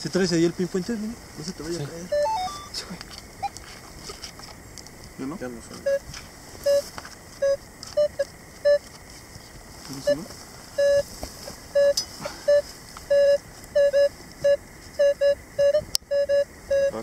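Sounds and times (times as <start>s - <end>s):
metal detector short beeps: 2.1s - 2.8s, 10.8s - 11.0s, 11.8s - 14.1s, 15.0s - 17.0s.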